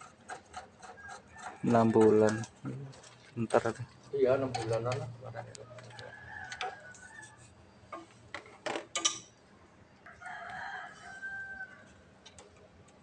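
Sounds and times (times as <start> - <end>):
rooster crowing: 0.9 - 2.0, 5.5 - 7.7, 10.0 - 12.0.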